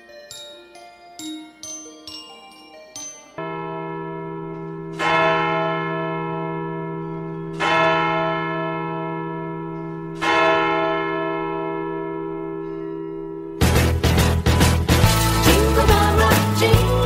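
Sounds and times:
bell ringing: 0:00.0 - 0:11.3.

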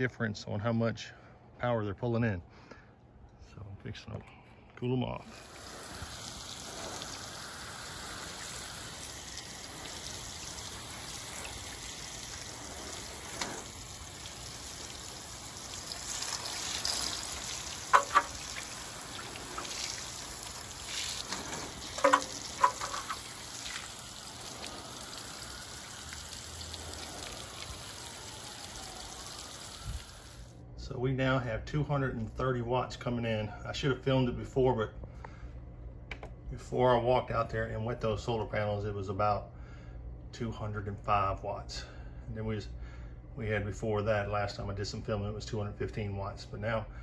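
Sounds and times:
water spraying on metal roof: 0:05.3 - 0:30.5.

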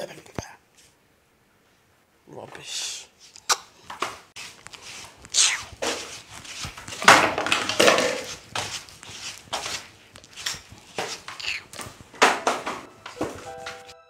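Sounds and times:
broom sweeping floor: 0:03.2 - 0:14.0.

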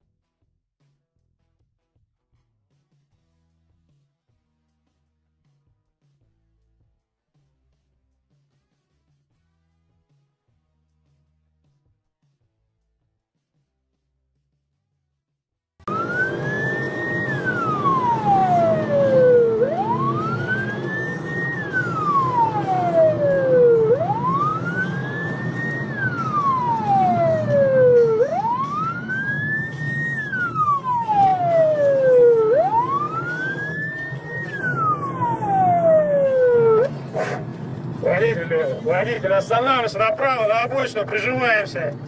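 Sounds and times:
engine and road noise rumble: 0:15.8 - 0:42.0
police siren wailing: 0:15.9 - 0:41.2.

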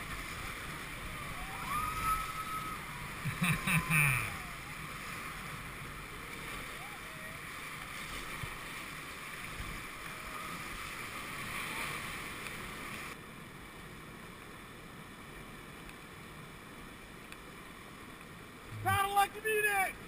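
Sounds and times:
waves splashing against raft: 0:00.0 - 0:14.5, 0:15.2 - 0:20.0
river whitewater rushing: 0:00.0 - 0:20.0.

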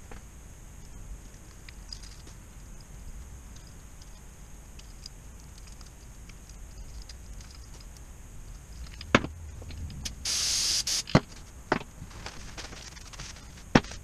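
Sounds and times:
aerosol spray hiss: 0:10.1 - 0:11.2.

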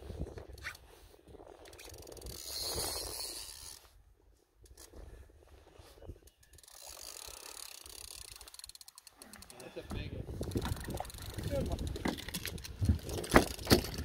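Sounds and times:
fishing reel ticking: 0:01.4 - 0:03.9, 0:06.2 - 0:14.0.

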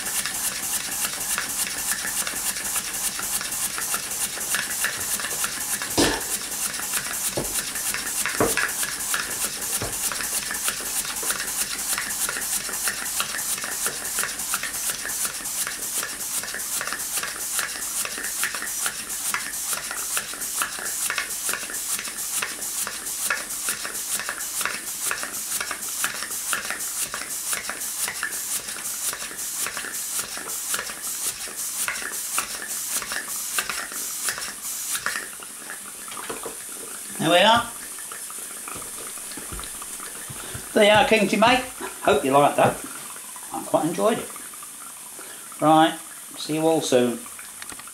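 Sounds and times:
steam engine chuffing: 0:00.0 - 0:35.3
steam hissing: 0:00.0 - 0:35.8, 0:36.6 - 0:42.9
loud knocks: 0:08.4 - 0:08.7.

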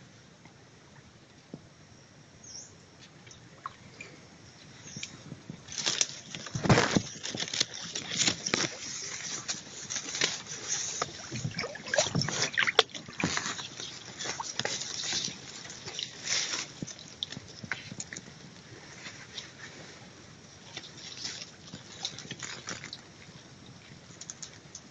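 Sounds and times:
leaves and stems rustling: 0:04.0 - 0:24.9
foliage brushing microphone: 0:05.2 - 0:18.0.

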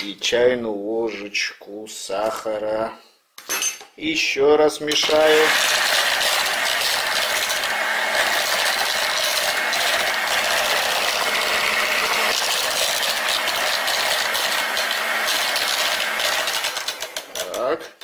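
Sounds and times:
electric hand mixer running: 0:05.0 - 0:17.5.

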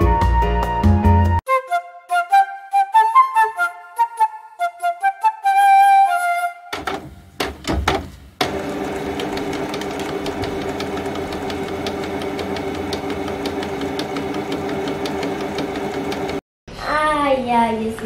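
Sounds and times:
clicks and knocks: 0:06.7 - 0:16.4
drawing machine motor hum: 0:08.4 - 0:16.4.

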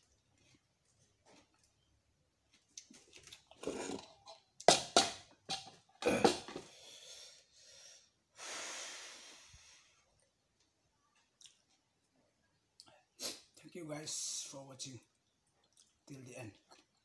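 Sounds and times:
plate and cutlery knocking on table: 0:04.7 - 0:06.6
breathy exhale: 0:06.6 - 0:10.0.

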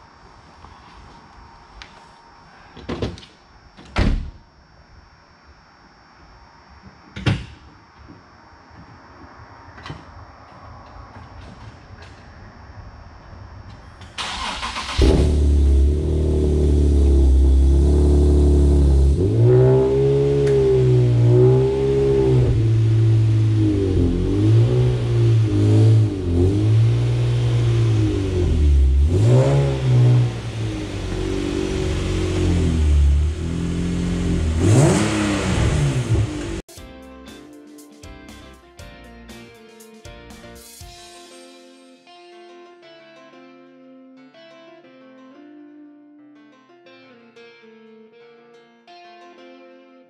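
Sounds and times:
car engine starting and revving: 0:14.0 - 0:36.7.

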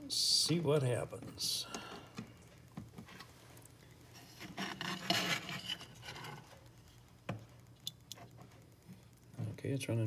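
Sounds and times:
device scraping on bench: 0:04.2 - 0:06.4.

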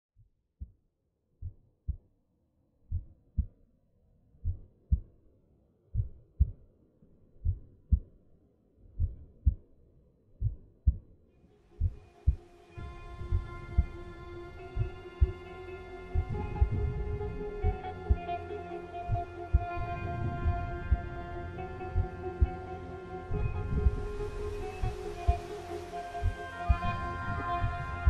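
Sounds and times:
heartbeat thumps: 0:02.9 - 0:03.5, 0:04.4 - 0:05.1, 0:06.0 - 0:06.7, 0:07.4 - 0:08.1, 0:09.0 - 0:09.6, 0:10.4 - 0:11.0
sustained high musical tones: 0:12.0 - 0:28.0.

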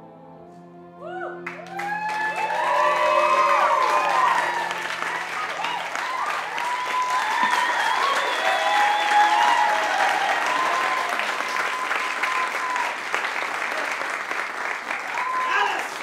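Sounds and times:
voices whooping and calling out: 0:01.1 - 0:13.0, 0:15.1 - 0:15.9
audience applauding: 0:01.4 - 0:16.0.

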